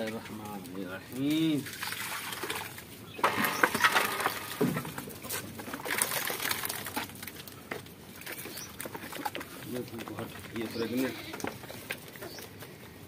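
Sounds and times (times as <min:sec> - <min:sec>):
goats eating from metal pans: 0:00.0 - 0:13.0
soft bird calls: 0:10.5 - 0:12.9.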